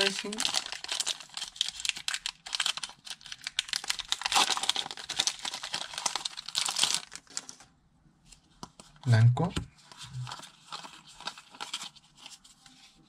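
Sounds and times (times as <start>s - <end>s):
foil wrapper crinkling and tearing: 0.0s - 7.7s, 10.2s - 12.4s.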